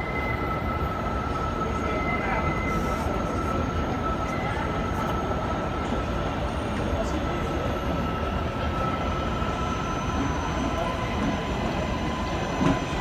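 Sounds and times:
train rumbling on track: 0:00.0 - 0:13.0.

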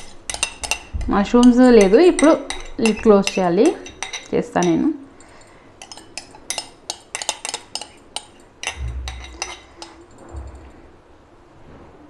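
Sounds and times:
metal spoon clinking glass bowl: 0:00.0 - 0:10.6
dull low thumps: 0:08.8 - 0:09.2.

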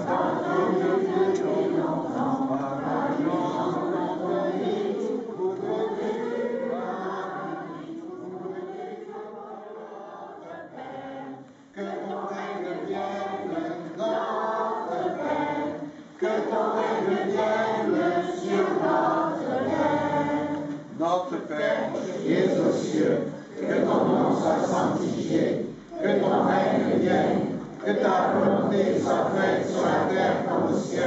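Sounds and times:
group singing church chant: 0:00.0 - 0:31.0.

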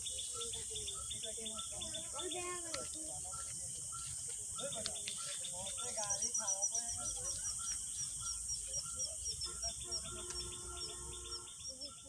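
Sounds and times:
bird chirping: 0:00.0 - 0:12.0
birds warbling: 0:00.0 - 0:12.0.

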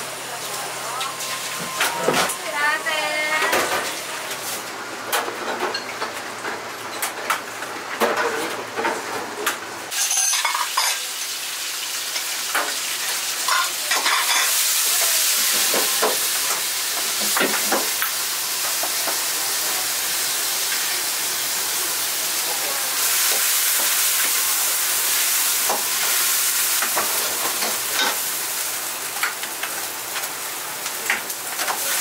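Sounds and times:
utensils clinking on pots: 0:09.9 - 0:11.4, 0:13.4 - 0:16.2
food sizzling in a pan: 0:09.9 - 0:32.0.

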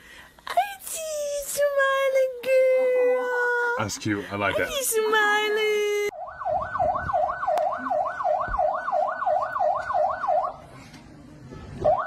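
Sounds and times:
electronic yelp siren: 0:06.1 - 0:10.6, 0:11.8 - 0:12.0.

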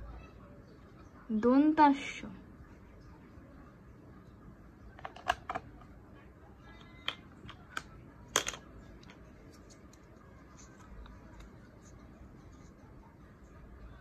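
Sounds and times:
plastic tiles clicking: 0:06.9 - 0:10.1.

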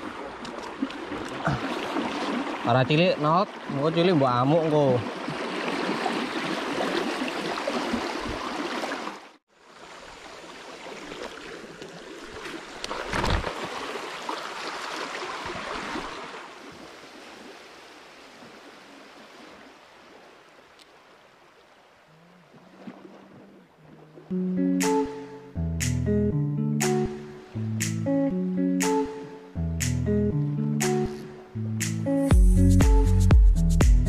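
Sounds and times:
river water rushing: 0:00.0 - 0:24.3.

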